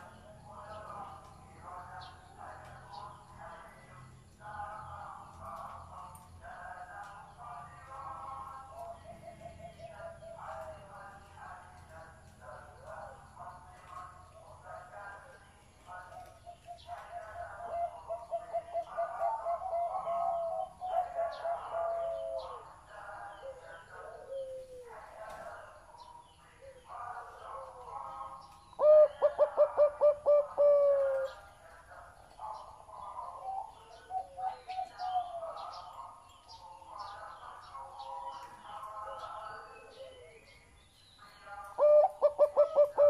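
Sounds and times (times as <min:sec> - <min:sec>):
dove cooing: 0:15.9 - 0:40.6, 0:41.7 - 0:43.0.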